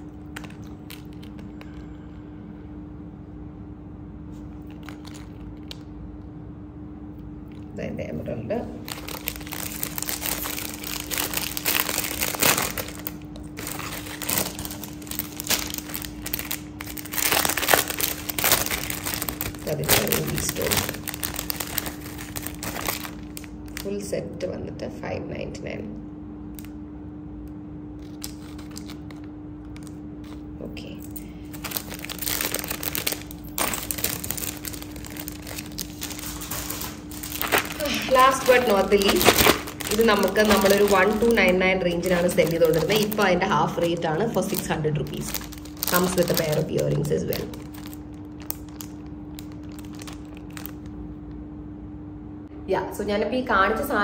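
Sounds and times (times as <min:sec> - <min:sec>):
plastic pouches crinkling: 0:00.0 - 0:01.9, 0:04.3 - 0:05.9, 0:08.8 - 0:24.0, 0:28.0 - 0:51.0.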